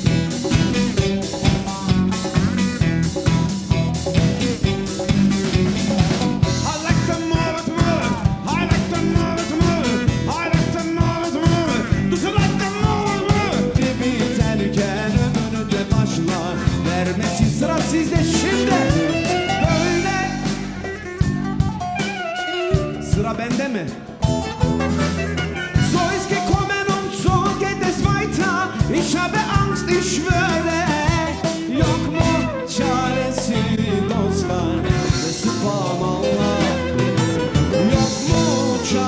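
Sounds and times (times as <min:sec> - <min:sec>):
congas: 0:00.0 - 0:23.1, 0:34.6 - 0:39.0
drum kit: 0:00.0 - 0:39.0
electric bass: 0:00.0 - 0:39.0
live band music: 0:00.0 - 0:39.0
sliding lead melody: 0:00.0 - 0:39.0.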